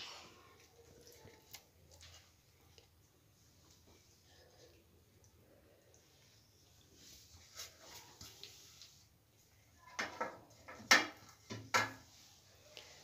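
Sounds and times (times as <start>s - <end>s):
dishes clinking and knocking: 9.9s - 12.1s.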